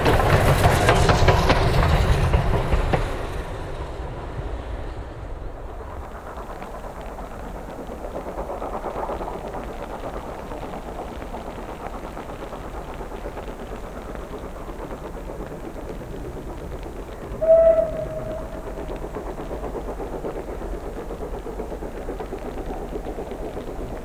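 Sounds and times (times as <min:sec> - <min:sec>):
wind rumble on microphone: 0:00.0 - 0:24.0
steam locomotive whistle: 0:17.4 - 0:19.0.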